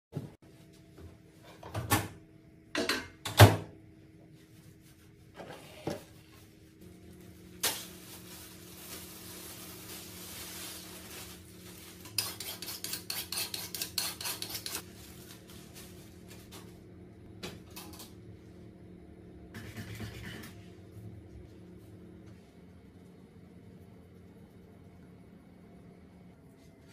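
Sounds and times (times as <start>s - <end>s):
plastic bag rustling: 6.8s - 12.2s, 14.8s - 16.8s
steady low hum: 14.6s - 26.9s.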